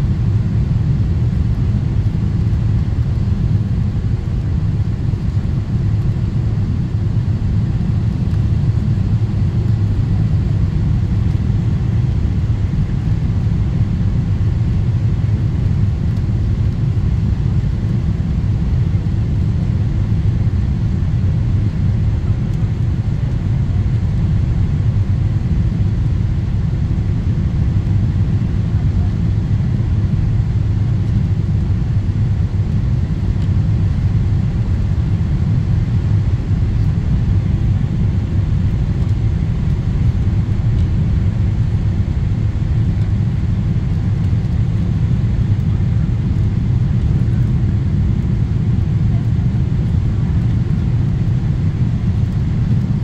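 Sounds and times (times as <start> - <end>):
jet engine rumble in cabin: 0.0 - 53.0.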